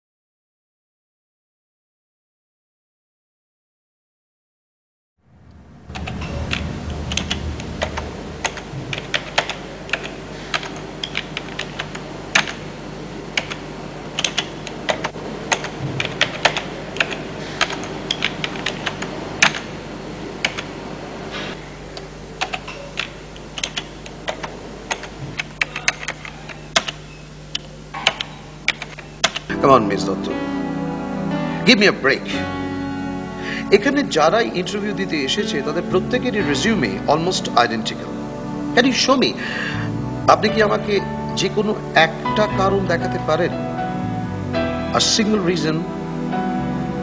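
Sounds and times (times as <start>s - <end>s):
steady low hum: 5.2s - 47.0s
keyboard typing clicks: 6.0s - 12.6s, 13.4s - 13.6s, 14.2s - 19.7s, 22.0s - 27.0s, 27.6s - 29.5s.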